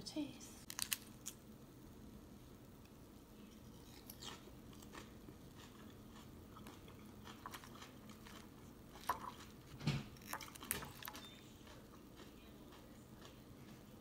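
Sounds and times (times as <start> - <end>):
person chewing food: 3.4 - 14.0.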